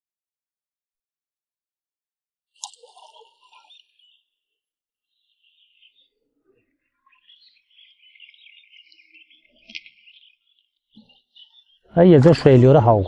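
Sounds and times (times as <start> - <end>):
faint birds chirping: 2.6 - 13.0.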